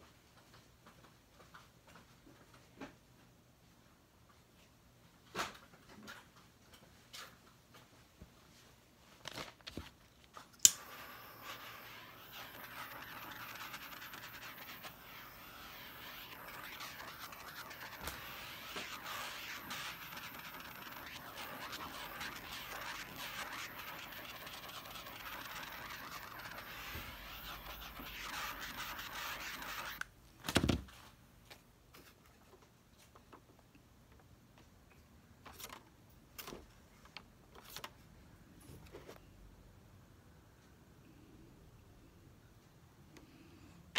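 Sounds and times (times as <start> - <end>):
sharp click: 10.6 - 10.9
fingers tapping vinyl record: 10.7 - 30.1
paint bottle shaking: 10.8 - 30.0.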